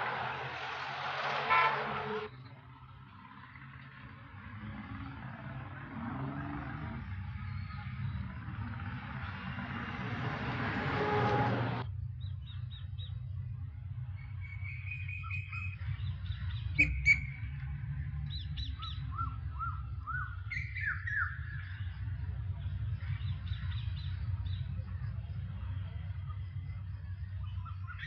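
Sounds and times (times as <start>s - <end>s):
broad noise: 0.0s - 28.0s
low rumble: 7.0s - 28.0s
birds chirping and calling: 14.2s - 17.5s, 18.2s - 24.8s.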